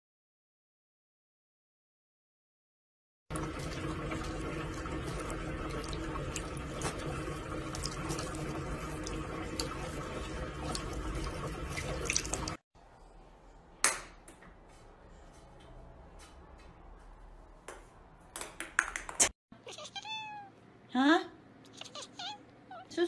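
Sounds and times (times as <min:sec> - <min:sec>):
water drips: 0:03.3 - 0:12.6
water running from sink tap: 0:03.3 - 0:12.6.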